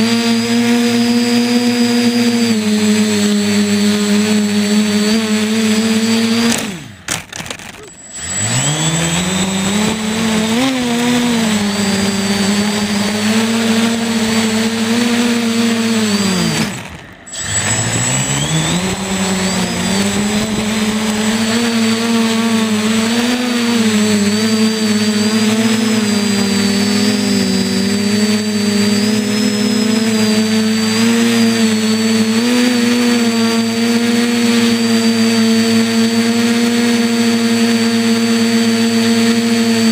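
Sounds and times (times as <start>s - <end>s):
quadcopter motors whining: 0.0s - 39.9s.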